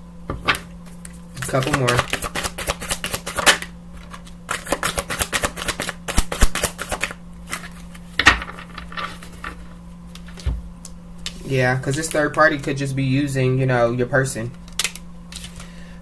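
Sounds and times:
cards being shuffled: 0.8 - 10.6, 14.5 - 15.8.

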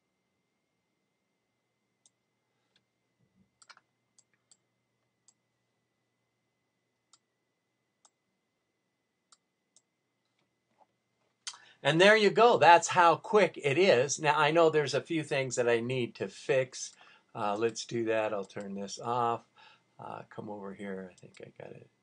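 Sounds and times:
computer mouse clicks: 3.6 - 4.6.

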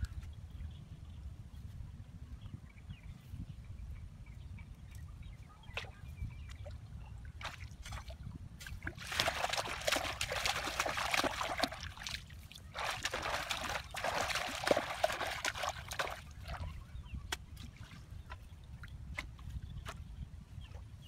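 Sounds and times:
water splashing and trickling: 5.7 - 20.0.

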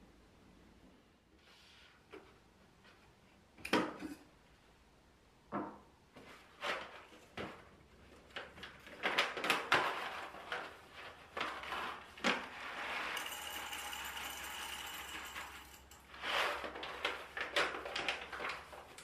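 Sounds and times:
paper bag rustling: 16.1 - 19.0.

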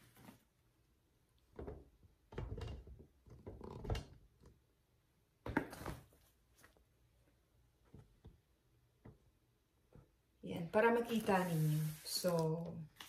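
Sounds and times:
fabric bag rustling: 11.0 - 12.5.

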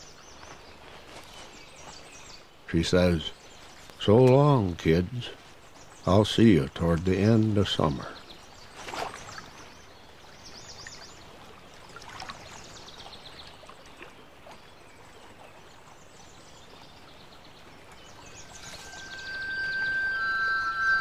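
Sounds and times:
small birds singing: 0.0 - 21.0
running water hiss: 18.0 - 21.0
soft music tones: 18.4 - 21.0.

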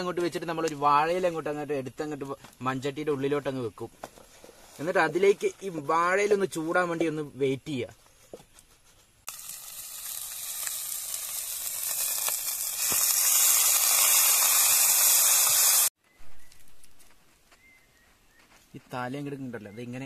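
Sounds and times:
liquid sizzling in hot pot: 9.3 - 15.9.

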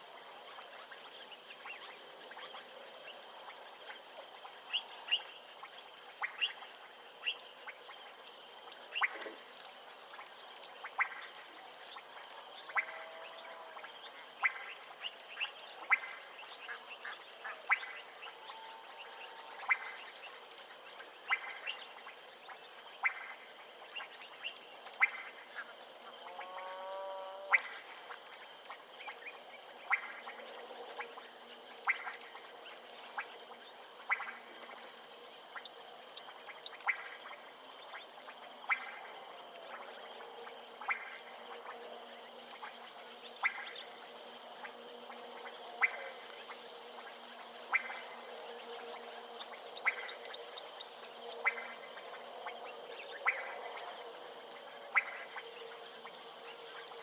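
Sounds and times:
frogs calling with clicking notes: 0.0 - 57.0
high insect drone: 0.0 - 57.0
frog warbling call: 12.6 - 20.4, 26.2 - 27.9, 42.5 - 48.3, 48.9 - 54.0, 54.9 - 55.5.

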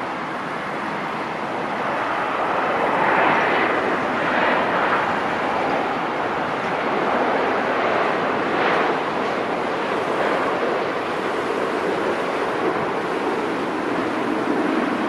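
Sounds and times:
jet engine roar: 0.0 - 15.0.

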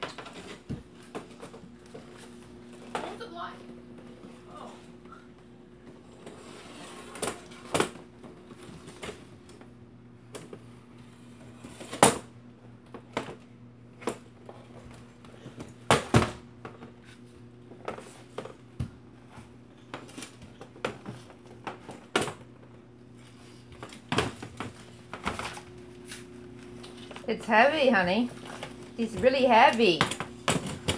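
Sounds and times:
chair scraping on floor: 5.9 - 7.8.

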